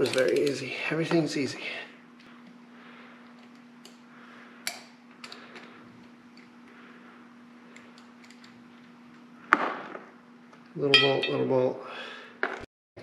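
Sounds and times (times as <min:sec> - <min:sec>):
faint steady hum: 0:00.0 - 0:12.7
ringing metal clank: 0:10.9 - 0:11.7.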